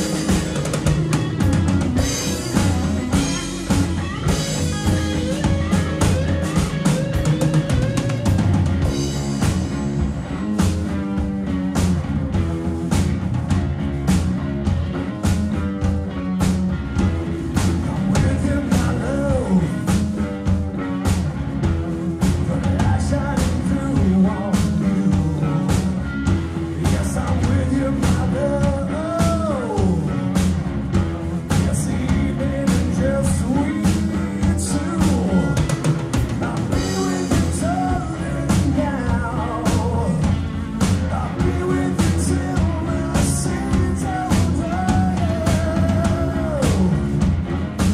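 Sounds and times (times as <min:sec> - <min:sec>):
bass guitar: 0:00.0 - 0:47.9
drum kit beat: 0:00.0 - 0:47.9
electric guitar: 0:00.0 - 0:47.9
man singing lead vocal: 0:17.7 - 0:20.4, 0:22.2 - 0:30.5, 0:31.5 - 0:47.2.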